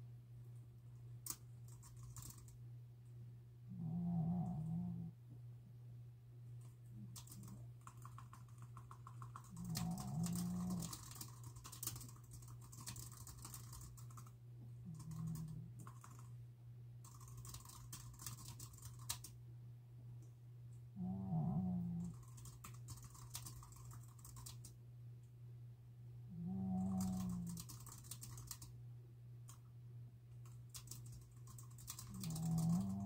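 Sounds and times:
dog snoring: 3.7 - 5.2, 9.6 - 11.0, 21.0 - 22.2, 26.3 - 27.6, 32.1 - 33.0
keyboard typing clicks: 7.2 - 14.3.

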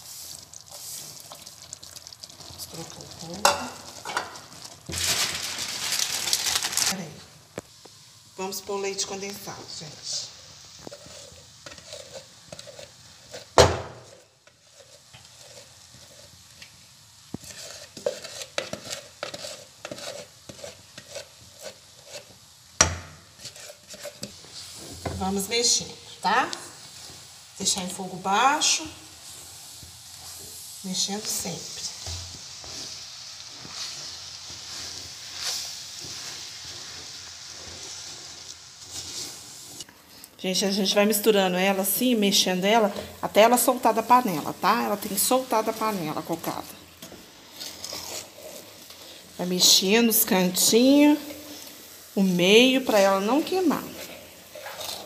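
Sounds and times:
wooden spoon scraping a pan: 0.0 - 7.0, 8.7 - 22.6, 23.2 - 39.9, 41.6 - 55.0
spoon scraping and clicking on pan: 10.8 - 16.7, 17.3 - 24.4.

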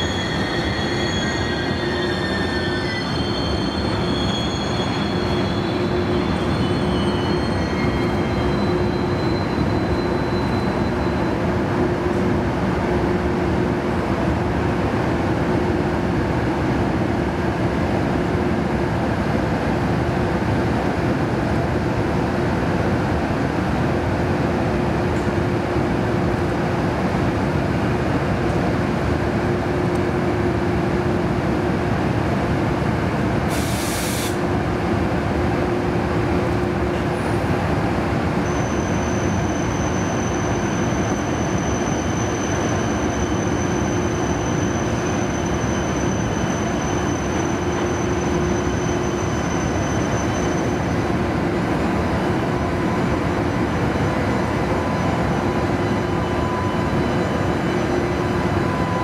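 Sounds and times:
thin high squeal: 0.0 - 11.3
freight train rumbling on rails: 0.0 - 59.0
short hiss: 33.5 - 34.4.

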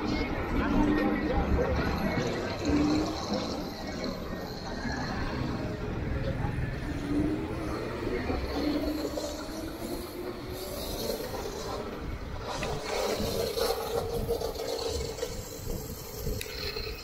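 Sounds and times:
wind rush on microphone: 7.2 - 17.0.

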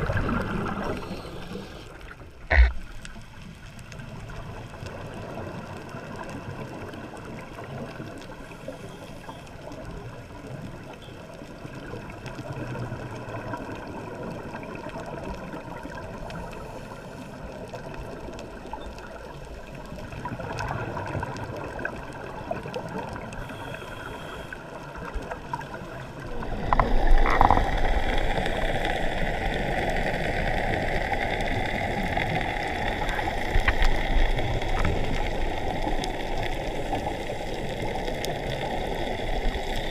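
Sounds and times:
water gurgling and bubbling: 0.0 - 3.4, 20.0 - 23.6, 24.6 - 39.9.

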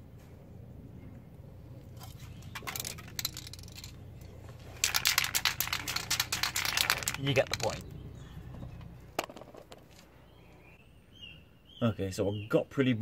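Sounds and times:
spray can rattling when shaken: 2.0 - 4.0, 4.6 - 7.8.

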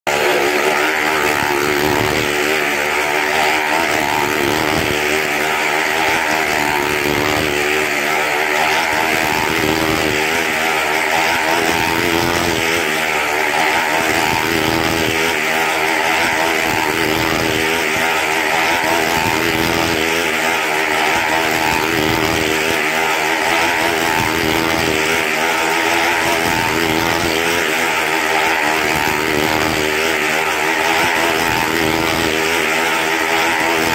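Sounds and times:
motorcycle engine running hard: 0.0 - 33.9.

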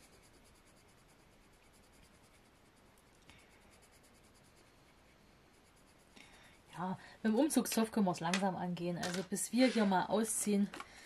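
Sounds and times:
pencil scratching paper card: 0.0 - 6.2.

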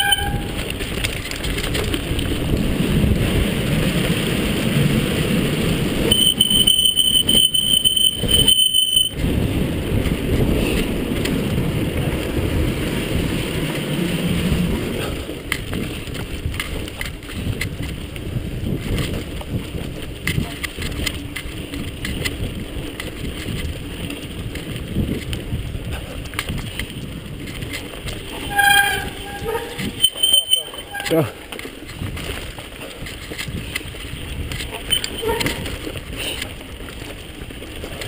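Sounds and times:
high-pitched brake squeal: 0.0 - 0.6, 6.1 - 9.2, 28.4 - 31.4, 34.8 - 35.7
bike rattling: 0.0 - 38.0
bike tyres rumbling on dirt: 0.0 - 38.0.

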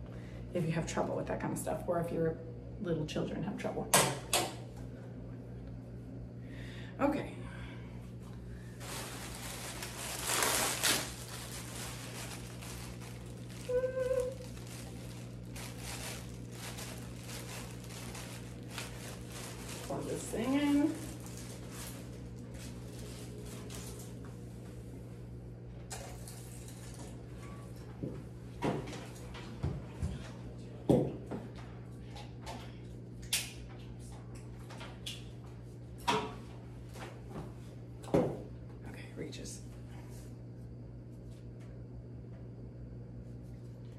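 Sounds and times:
steady low hum: 0.0 - 43.9
plastic bag crinkling: 8.6 - 24.1.

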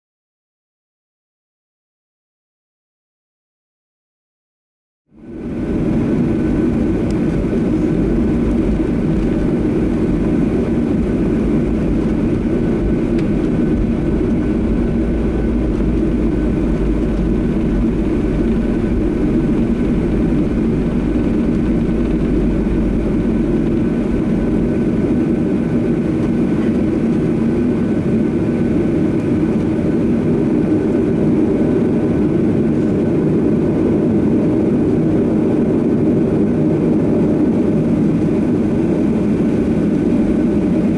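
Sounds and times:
deep low rumble: 5.1 - 34.0
jet engines humming: 5.1 - 40.9
faint steady whine: 5.2 - 33.1.

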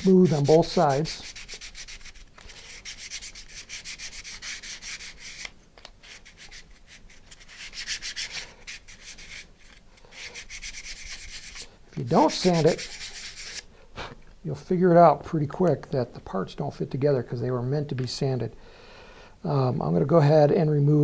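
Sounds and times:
sandpaper rasping on plywood: 0.0 - 9.5, 10.1 - 13.6.

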